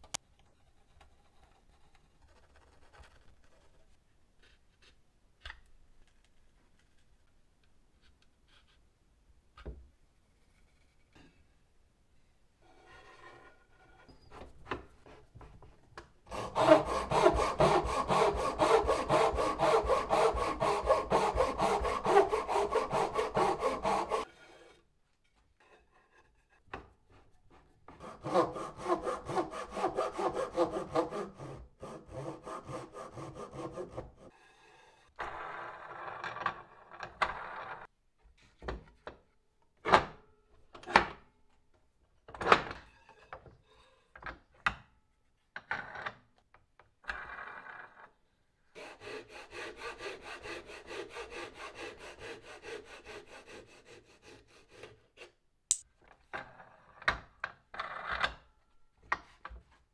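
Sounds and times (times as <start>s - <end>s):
handsaw cutting wood: 16.3s - 24.8s, 28.0s - 34.4s, 48.8s - 55.4s.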